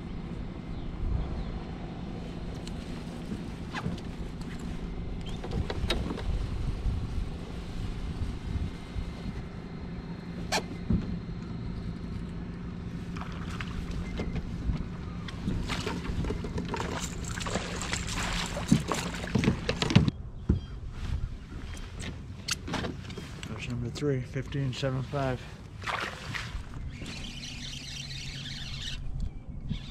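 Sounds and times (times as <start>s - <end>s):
wind rumble on microphone: 0.0s - 23.7s, 26.2s - 29.9s
electric trolling motor humming: 24.7s - 29.9s.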